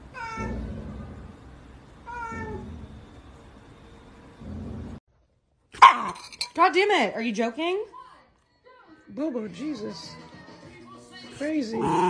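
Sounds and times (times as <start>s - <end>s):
cat meowing: 0.1s - 0.7s, 2.1s - 2.8s.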